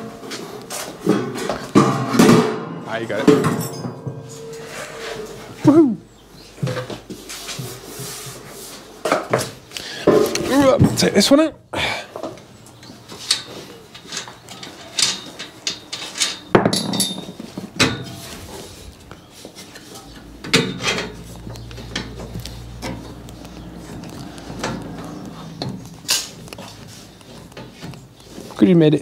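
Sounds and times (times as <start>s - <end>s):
metal tools clinking on bolts: 0.8s - 5.7s, 12.2s - 26.8s.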